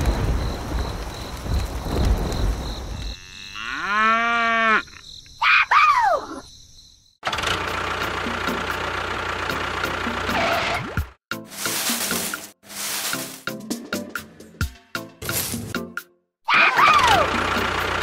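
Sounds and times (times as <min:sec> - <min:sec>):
cow mooing: 0:03.2 - 0:04.9.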